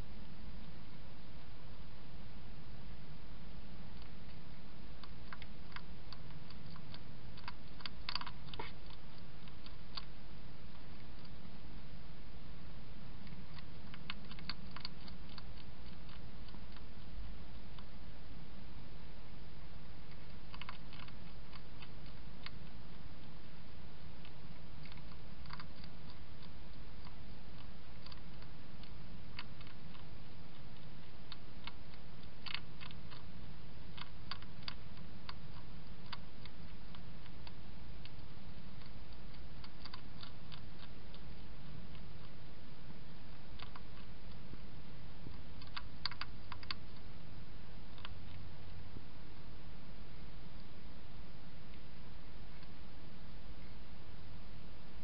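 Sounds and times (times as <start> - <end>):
low hum: 0.0 - 55.0
hedgehog crunching dry food: 4.0 - 11.6, 13.2 - 17.9, 20.0 - 23.4, 24.0 - 47.1.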